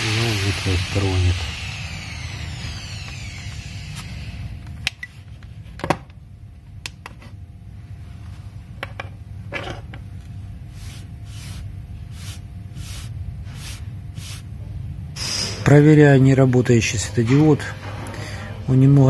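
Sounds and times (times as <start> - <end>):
steady low hum: 0.0 - 19.0
soft hissing puffs: 10.7 - 14.5.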